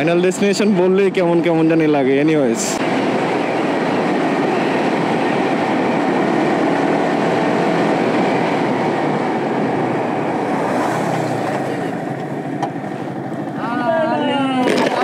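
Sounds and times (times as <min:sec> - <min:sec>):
wind rush: 0:02.6 - 0:13.6.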